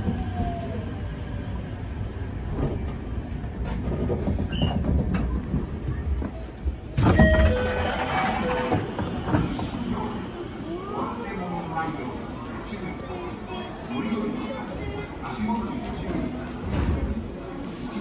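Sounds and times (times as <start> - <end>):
low train rumble: 0.0 - 18.0.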